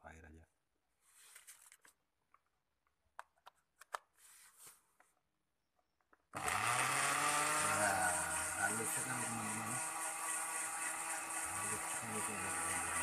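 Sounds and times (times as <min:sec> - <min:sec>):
blender motor running: 0:06.3 - 0:13.0.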